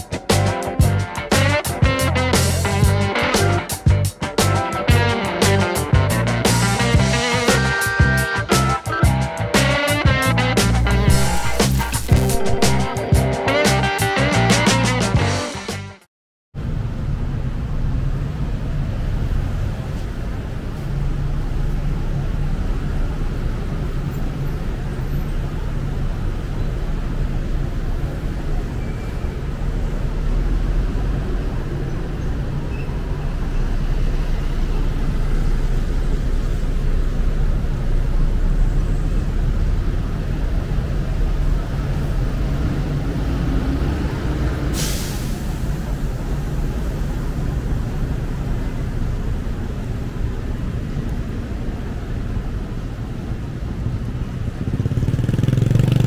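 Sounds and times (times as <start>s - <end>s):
short sharp hiss: 11.2s - 13.0s, 44.7s - 45.8s
traffic on wet roads: 16.6s - 56.0s.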